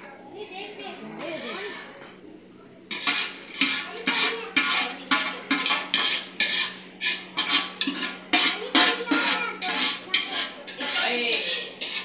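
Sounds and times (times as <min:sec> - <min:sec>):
grains scraping in metal pot: 0:02.9 - 0:12.0.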